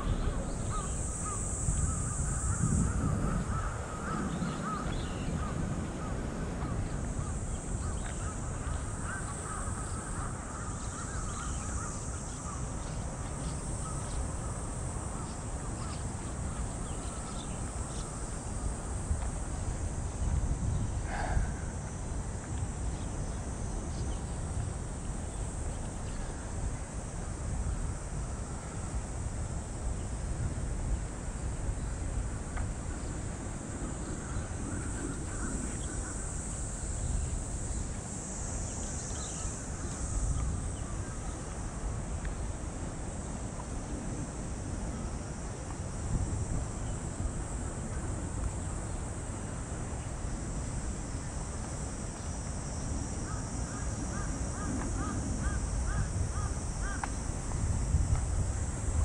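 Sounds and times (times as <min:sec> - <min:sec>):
cicadas buzzing: 0:00.0 - 0:59.0
wind rumble on microphone: 0:00.0 - 0:59.0
crow cawing: 0:02.5 - 0:05.5, 0:53.3 - 0:57.1.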